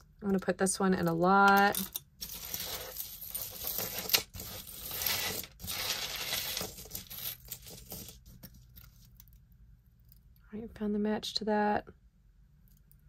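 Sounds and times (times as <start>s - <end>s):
metal jewelry clinking: 1.5s - 8.1s.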